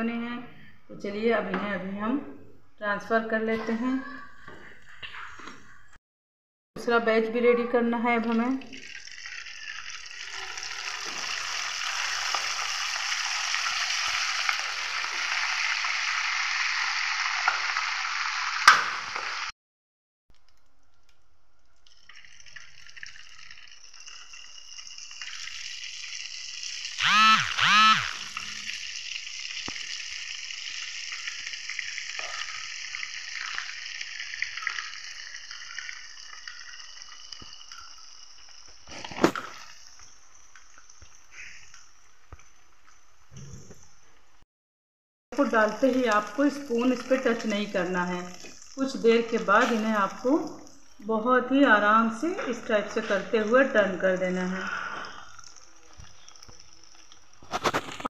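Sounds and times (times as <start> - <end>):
dough sizzling in hot oil: 8.7 - 19.5, 21.8 - 27.0, 28.0 - 43.2, 45.4 - 58.0.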